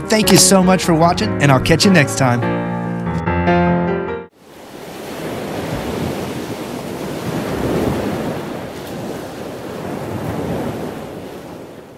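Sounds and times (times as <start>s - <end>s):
ocean surf washing in: 4.3s - 11.9s
wind: 4.3s - 11.9s.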